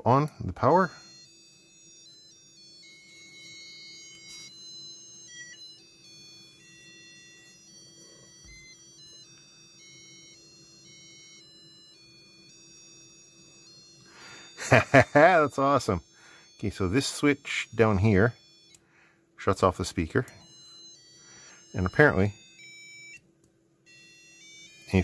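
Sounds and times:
buzzer beeping melody: 0.0s - 25.0s.

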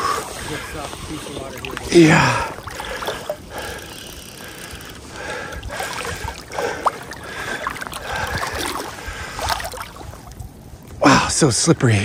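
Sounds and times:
river rushing and splashing: 0.0s - 3.5s, 5.6s - 10.4s
person wading over rocks: 0.0s - 3.8s, 5.0s - 10.6s.

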